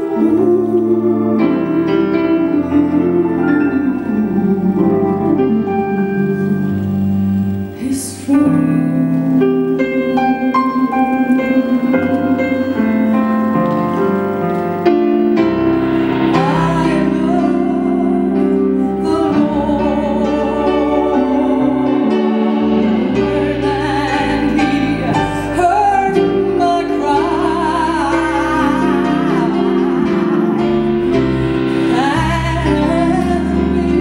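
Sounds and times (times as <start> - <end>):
keyboard playing held chords: 0.0 - 34.0
woman singing with vibrato: 0.0 - 34.0.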